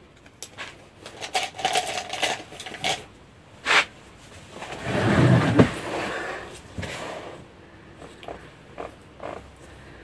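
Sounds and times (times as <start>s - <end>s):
small hard items clattering: 0.4s - 3.1s.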